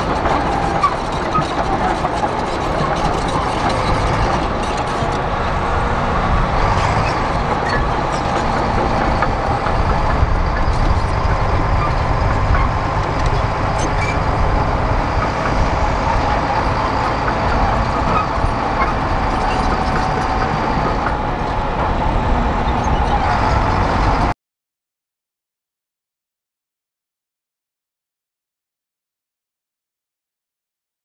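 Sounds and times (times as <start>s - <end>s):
bulldozer diesel engine: 0.0s - 24.4s.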